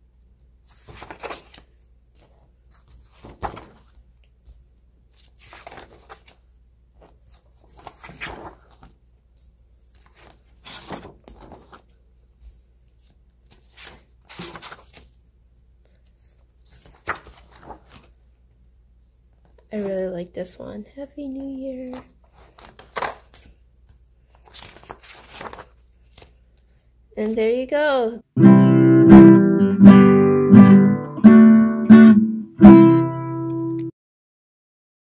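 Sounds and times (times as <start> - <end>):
paper pages turning: 0.6 - 15.2, 15.8 - 18.3, 21.7 - 27.5.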